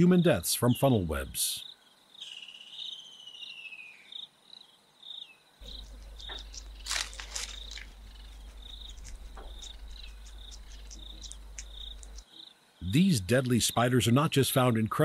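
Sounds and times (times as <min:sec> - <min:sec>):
cricket chirping: 0:01.6 - 0:14.3
low steady hum: 0:05.6 - 0:12.2
rustling and crackling: 0:05.6 - 0:12.3.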